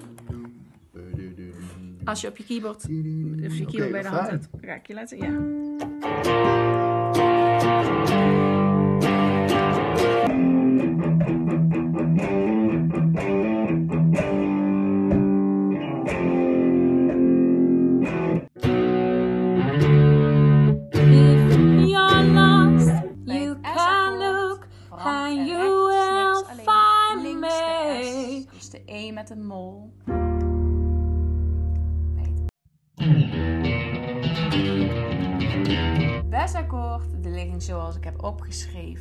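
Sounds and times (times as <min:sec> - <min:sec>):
person singing: 0:00.0 - 0:04.4, 0:21.0 - 0:28.5
keyboard playing chords: 0:05.3 - 0:21.8, 0:30.1 - 0:32.1
electric guitar playing chords: 0:05.3 - 0:24.4, 0:30.1 - 0:32.4, 0:33.0 - 0:36.8.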